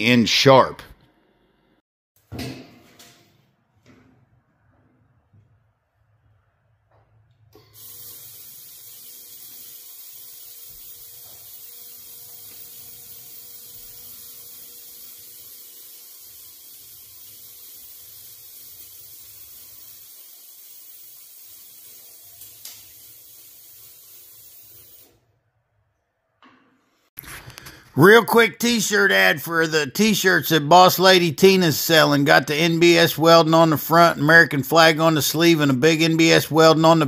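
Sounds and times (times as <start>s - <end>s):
laser welder hissing: 7.6s - 25.2s.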